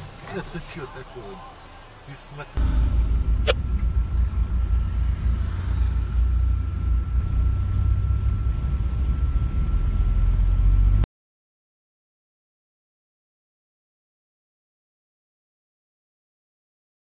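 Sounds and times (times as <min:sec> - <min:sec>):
car engine and tyres rumbling: 0:00.0 - 0:11.1
faint high whine: 0:00.7 - 0:11.1.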